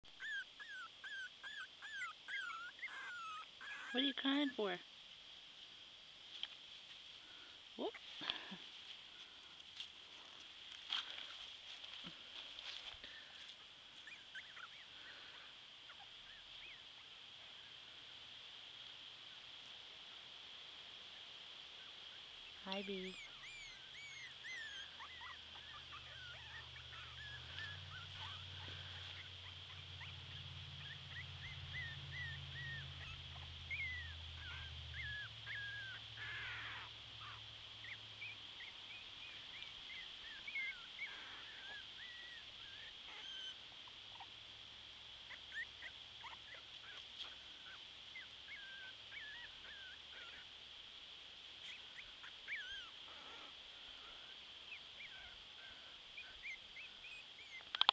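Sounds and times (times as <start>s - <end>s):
puppies squeaking and whining: 0.1s - 4.8s, 14.0s - 17.1s, 22.7s - 44.4s, 45.3s - 50.5s, 51.6s - 53.0s, 54.7s - 57.9s.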